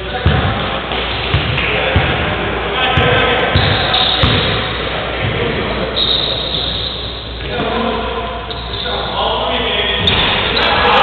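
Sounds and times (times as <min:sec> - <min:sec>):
players' voices in a hall: 0:00.0 - 0:11.0
basketball dribbled on gym floor: 0:03.0 - 0:04.6.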